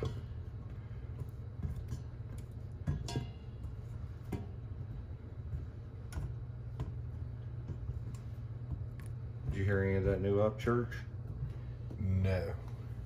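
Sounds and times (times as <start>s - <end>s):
steady low hum: 0.0s - 13.0s
clinks on pot: 2.8s - 3.6s.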